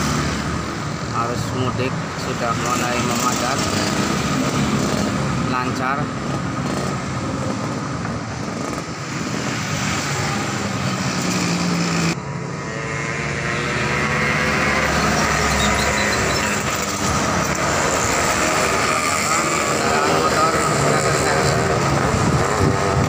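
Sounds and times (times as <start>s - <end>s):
motorcycles driving by: 0.0s - 23.0s
truck driving by: 9.5s - 22.7s.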